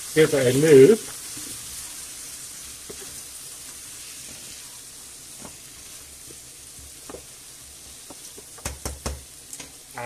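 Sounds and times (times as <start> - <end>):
chicken sizzling in a pan: 0.0 - 10.0
utensil knocking against pan: 8.6 - 9.3.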